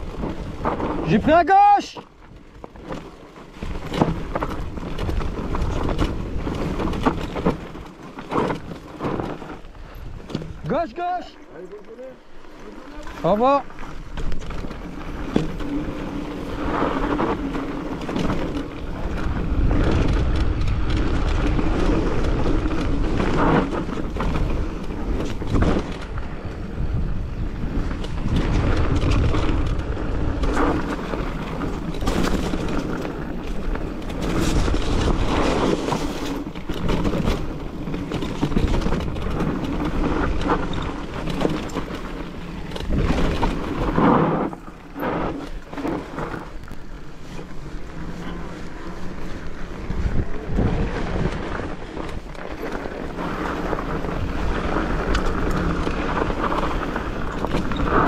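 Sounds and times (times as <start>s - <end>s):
mountain bike rattling over bumps: 0.0s - 58.0s
wind on microphone: 14.0s - 58.0s.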